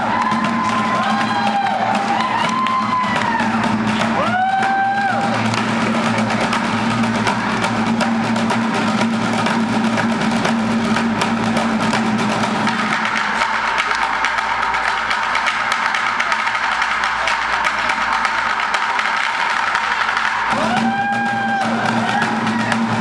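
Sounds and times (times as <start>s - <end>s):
children whooping: 0.0s - 5.6s, 20.5s - 23.0s
drumming on plastic buckets: 0.0s - 23.0s.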